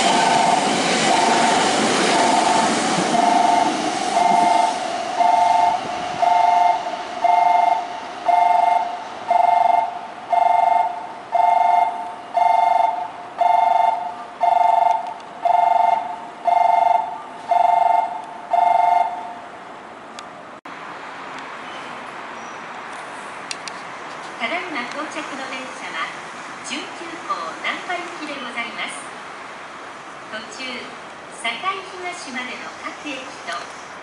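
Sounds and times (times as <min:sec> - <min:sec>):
train running noise: 0:00.0 - 0:34.0
railway warning bell two-note tone: 0:03.2 - 0:19.4.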